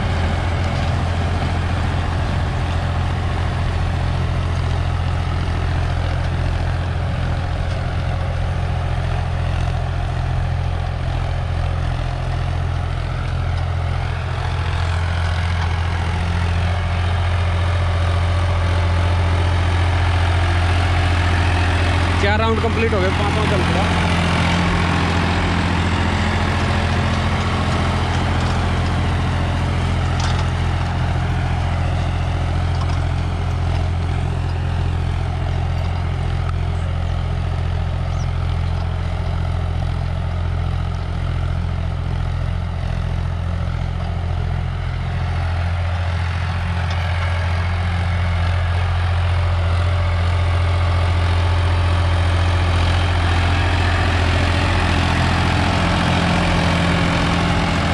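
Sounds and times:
tractor diesel engine under load: 0.0s - 57.9s.

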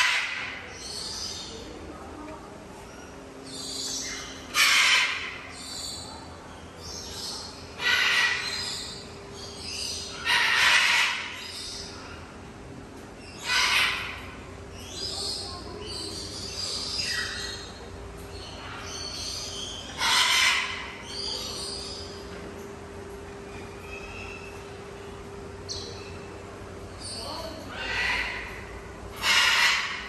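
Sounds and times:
cockatoo squawking: 20.0s - 21.0s, 27.7s - 30.0s.

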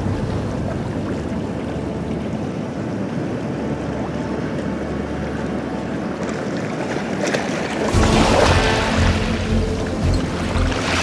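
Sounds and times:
waves on pebble beach: 6.1s - 11.0s.

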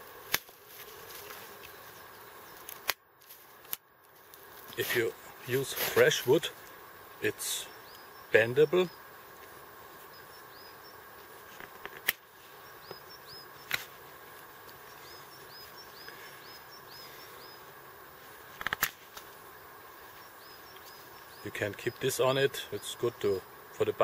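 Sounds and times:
bird chirping: 7.2s - 9.1s, 10.0s - 11.0s, 12.5s - 13.8s, 14.8s - 17.7s, 20.0s - 23.4s.

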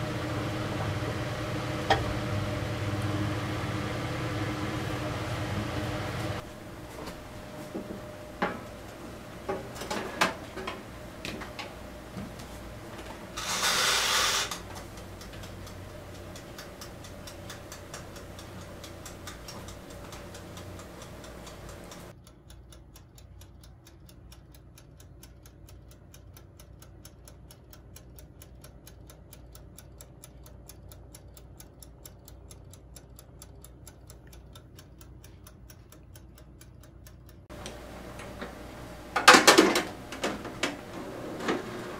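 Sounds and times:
dial timer ticking: 13.4s - 37.8s.

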